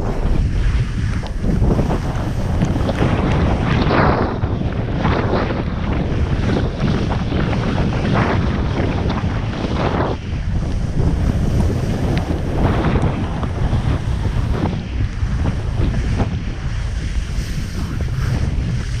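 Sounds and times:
sliding over icy snow: 0.0 - 4.3
wind buffeting microphone: 0.0 - 19.0.

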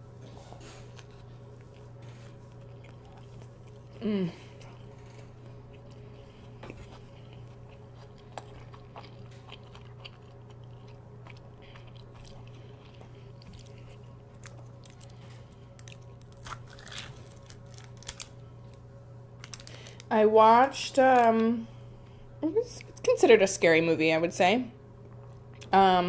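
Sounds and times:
faint steady hum: 0.0 - 26.0
chewing with wet mouth clicks: 0.9 - 15.2, 25.0 - 25.8.

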